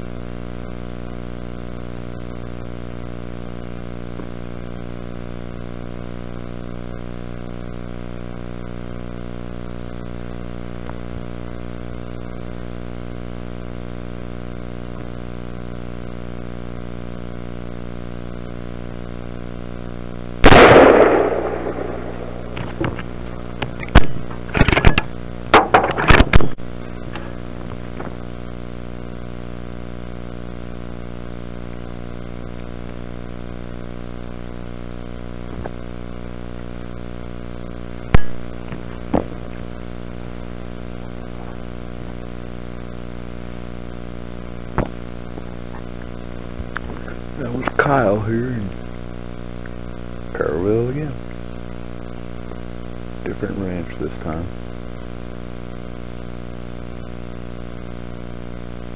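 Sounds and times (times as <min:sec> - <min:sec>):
steady droning hum: 0:00.0 - 0:58.9
rifle shot: 0:20.4 - 0:26.6
short sharp crack: 0:20.5 - 0:26.6.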